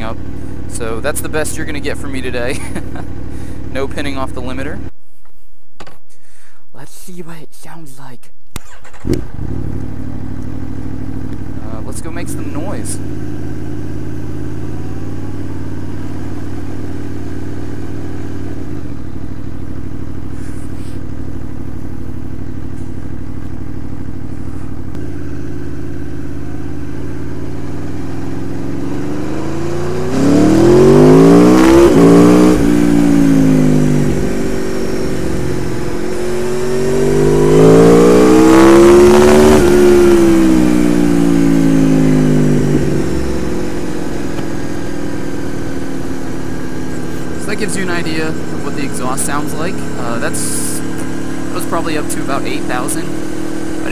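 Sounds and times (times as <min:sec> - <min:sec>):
motorcycle engine revving: 0:08.6 - 0:53.9.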